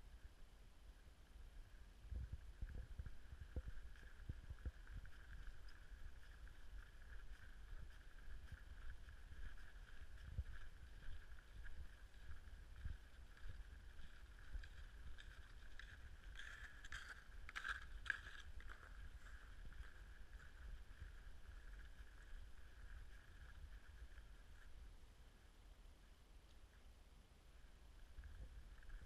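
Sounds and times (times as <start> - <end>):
squeaking movement over snow: 2.5 - 25.1.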